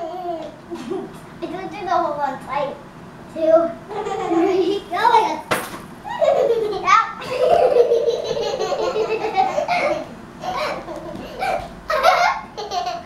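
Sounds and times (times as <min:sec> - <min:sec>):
girls laughing: 0:00.0 - 0:01.2, 0:03.9 - 0:04.8, 0:06.0 - 0:13.0.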